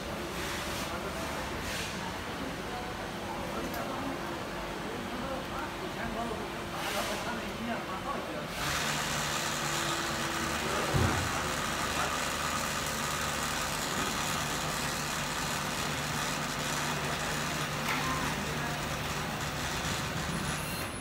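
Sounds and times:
factory machinery humming: 0.0 - 21.0
short thump: 10.9 - 11.4.

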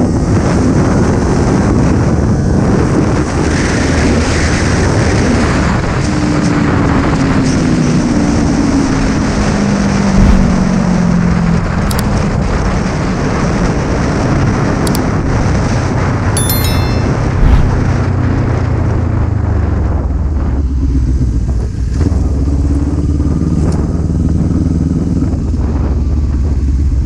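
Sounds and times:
wind rushing on microphone: 17.2 - 18.2.

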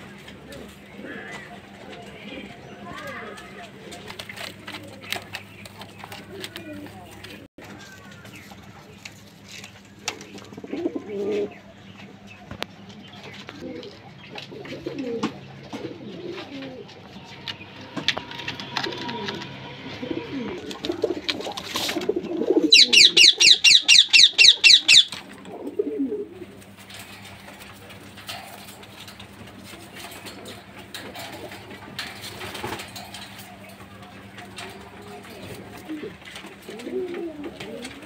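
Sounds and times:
pigeons cooing: 0.0 - 7.5, 9.7 - 38.0
bird chirping fast: 22.7 - 25.2.

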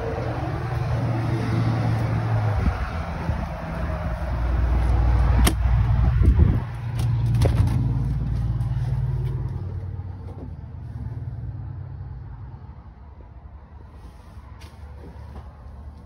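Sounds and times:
wind rumbling on microphone: 0.0 - 9.8.

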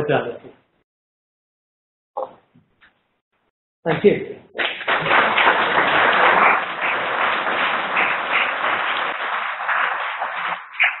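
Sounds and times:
audience applauding: 4.6 - 11.0.

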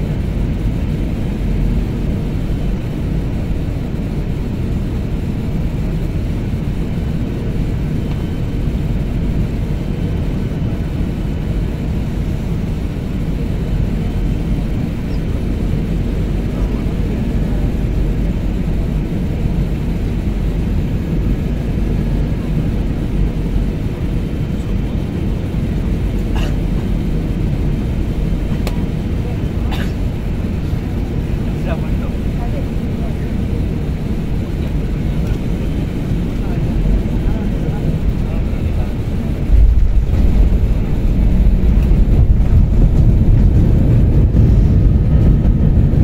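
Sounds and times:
jet engine and airflow rumble: 0.0 - 46.0.

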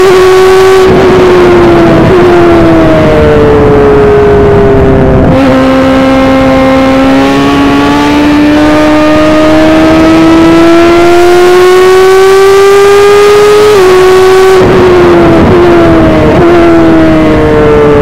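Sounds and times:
race car engine accelerating: 0.0 - 18.0.

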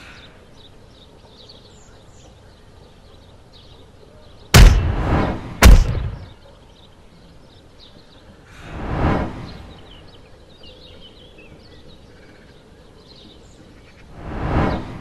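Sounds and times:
heavy booming impacts: 4.6 - 6.4.

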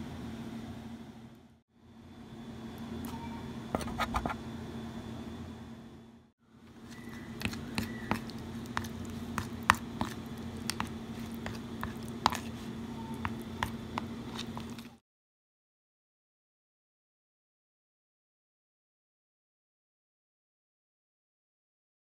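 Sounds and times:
steady low hum: 0.0 - 15.0
spoon stirring thick yogurt: 6.6 - 15.0.

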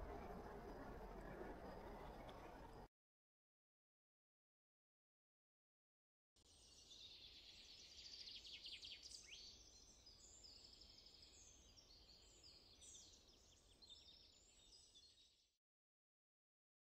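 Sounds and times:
low outdoor rumble: 0.0 - 2.9.

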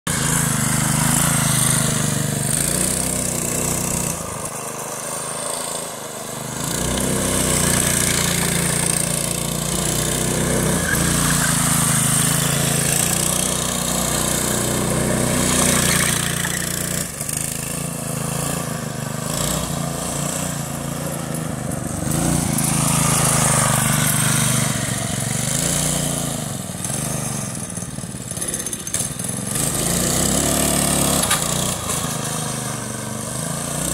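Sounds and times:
go-kart engine revving: 0.1 - 33.9.

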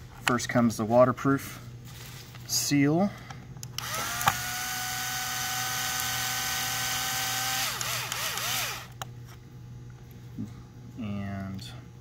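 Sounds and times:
cordless drill driving a screw: 3.8 - 9.0.

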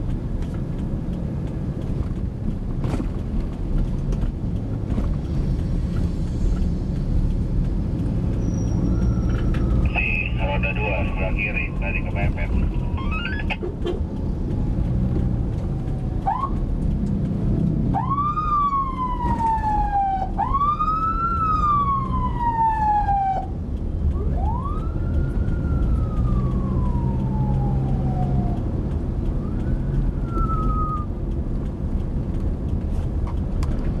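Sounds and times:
car engine and road rumble: 0.0 - 34.0
electronic siren wailing: 17.9 - 23.5.

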